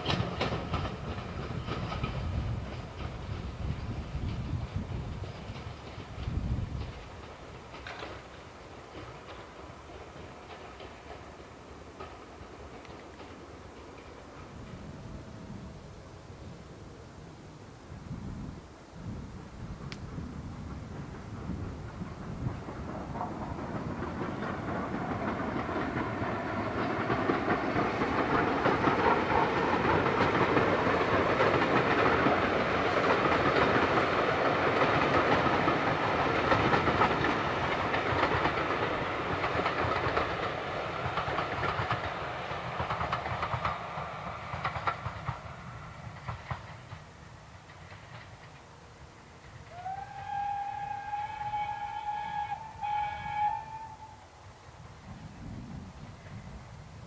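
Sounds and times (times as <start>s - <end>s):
wheels clattering over rail joints: 0.0s - 14.8s
steam locomotive passing: 0.0s - 57.0s.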